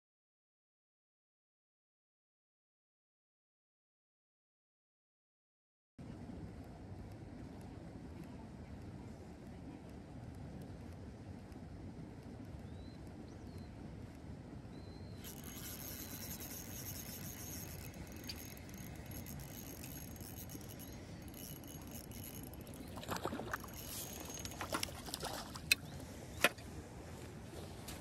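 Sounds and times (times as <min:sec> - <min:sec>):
fishing reel whirring: 0:15.2 - 0:25.8
sharp clicks and knocks: 0:15.2 - 0:25.8.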